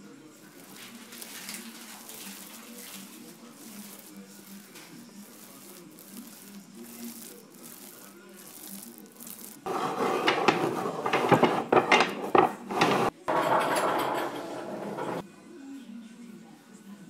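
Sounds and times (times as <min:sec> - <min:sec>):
wooden strips clattering: 0:07.0 - 0:15.2.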